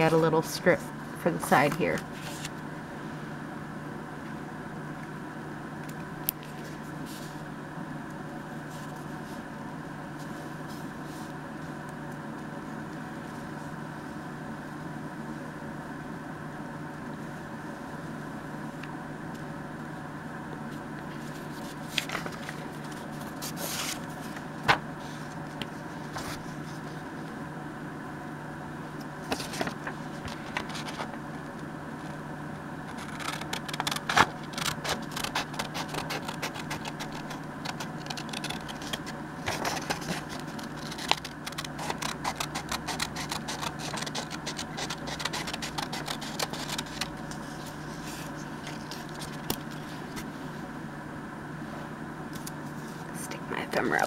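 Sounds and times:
steady low hum: 0.0 - 54.0
paper handling clicks: 21.2 - 26.4, 29.2 - 32.2, 32.8 - 50.3
scissors snipping paper: 32.8 - 47.4.

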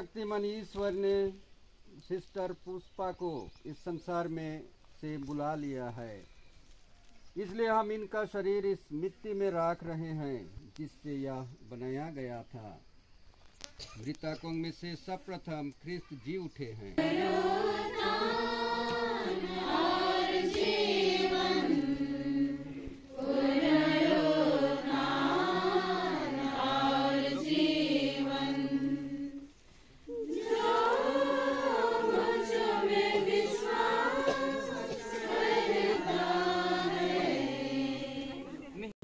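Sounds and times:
people singing a hymn: 17.0 - 38.9.

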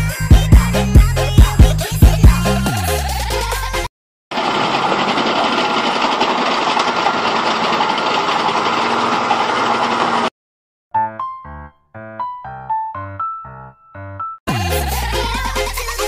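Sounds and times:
background music: 11.0 - 16.0.

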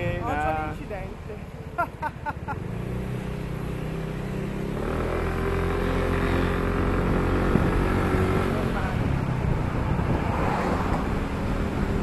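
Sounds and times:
motor scooter engine accelerating: 2.6 - 9.6.

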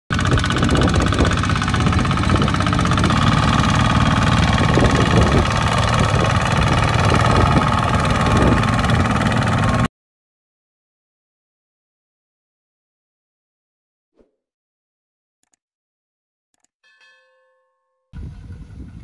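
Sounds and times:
diesel tractor engine running: 0.1 - 9.9.

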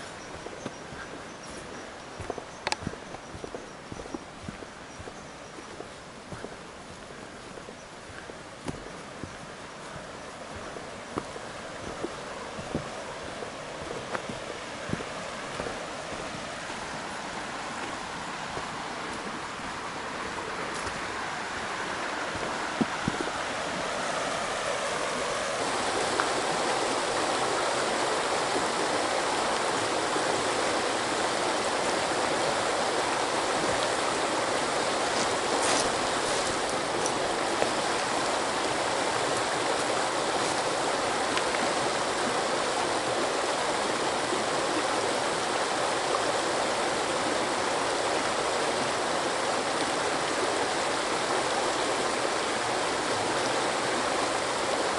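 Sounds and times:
river rushing over stones: 0.0 - 54.9.

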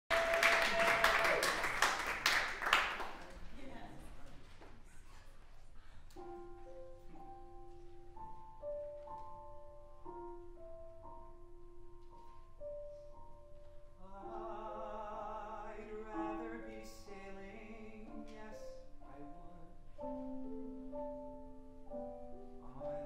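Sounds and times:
grand piano playing chords: 6.1 - 23.0
man singing with vibrato: 14.0 - 19.9.

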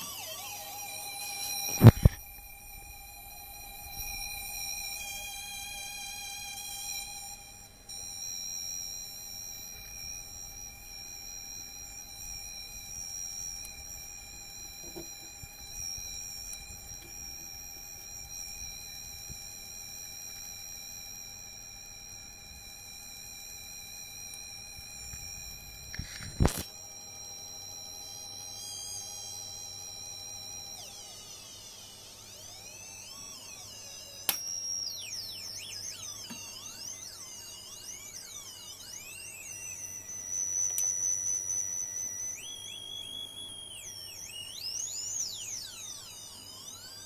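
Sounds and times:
wavering sine test tones: 0.0 - 47.0
sharp loud click: 34.3 - 34.5.

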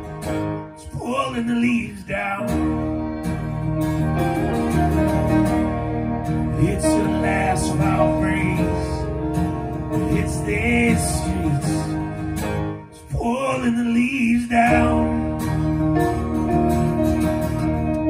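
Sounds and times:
strummed acoustic guitar: 0.0 - 18.0
fiddle playing: 2.5 - 12.9.

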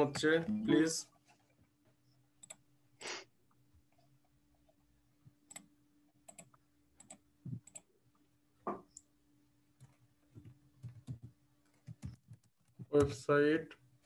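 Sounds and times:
faint steady hum: 0.0 - 14.0
keyboard typing: 2.4 - 2.7, 5.4 - 7.9, 9.8 - 13.2.

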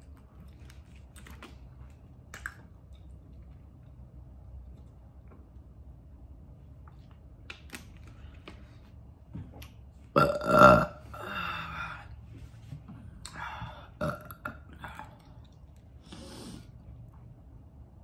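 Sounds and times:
woman burping: 10.1 - 11.8, 13.9 - 15.0
breathy exhale: 13.3 - 14.0, 16.0 - 16.8.

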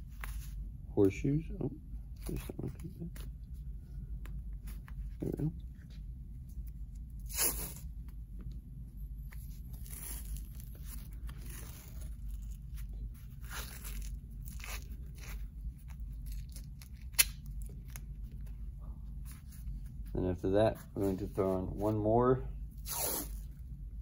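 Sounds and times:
tape pulled and torn: 9.3 - 18.5, 22.8 - 23.5.

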